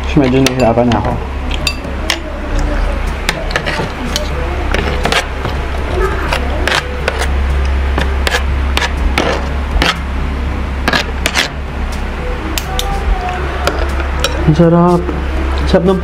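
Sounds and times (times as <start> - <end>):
steady low hum: 0.0 - 16.0
cutlery scraping a plate: 3.4 - 5.6, 6.3 - 7.3, 10.9 - 11.6.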